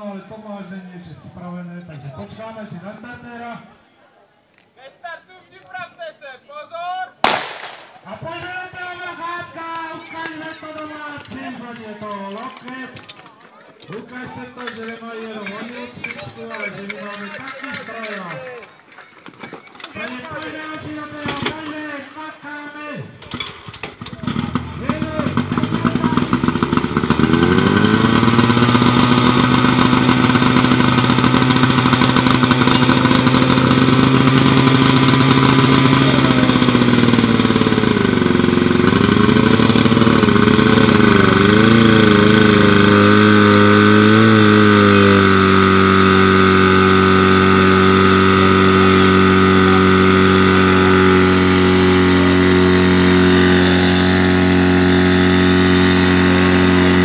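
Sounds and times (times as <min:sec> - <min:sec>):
fire pump engine running hard: 0:23.3 - 0:57.0.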